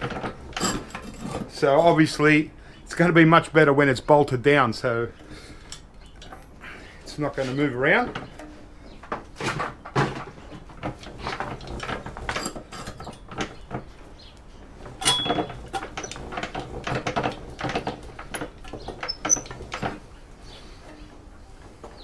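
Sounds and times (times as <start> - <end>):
wire stripper clicking and rattling: 8.0 - 20.2.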